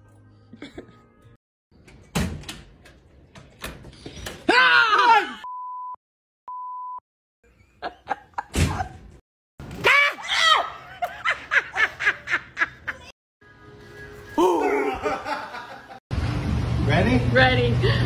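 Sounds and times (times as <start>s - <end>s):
person crying out loudly: 4.5s - 5.4s, 14.4s - 15.2s
censor bleeps: 5.4s - 7.0s.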